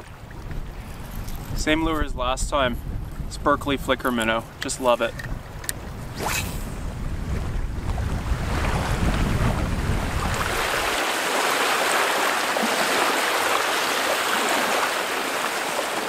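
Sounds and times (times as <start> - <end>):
waves splashing and lapping: 0.0 - 2.4, 3.6 - 16.0
wind buffeting microphone: 0.0 - 11.2.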